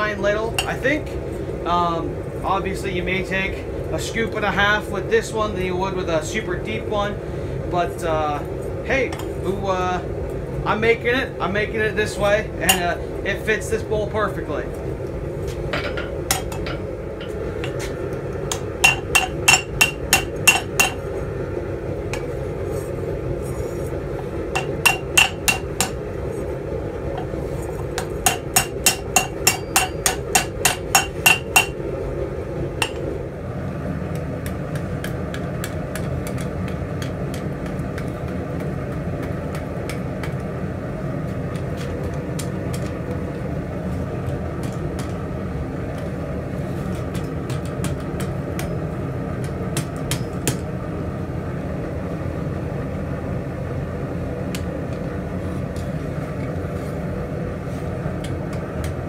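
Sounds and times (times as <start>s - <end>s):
steady background noise: 0.0s - 59.0s
hammer ringing on hot steel: 18.5s - 21.0s, 24.6s - 26.0s, 28.0s - 31.8s.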